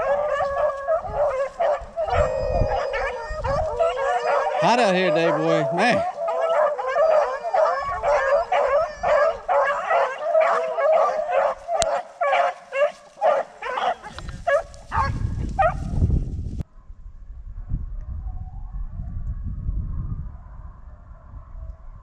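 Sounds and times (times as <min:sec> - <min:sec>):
hounds baying and barking: 0:00.0 - 0:16.0.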